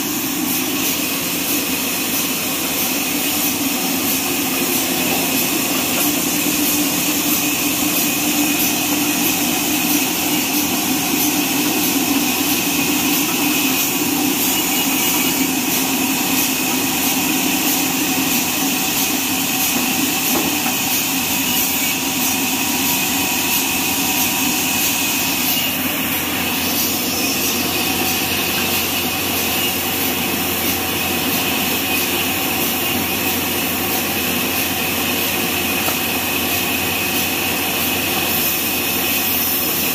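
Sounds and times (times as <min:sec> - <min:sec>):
band saw mechanical drone: 0:00.0 - 0:36.7.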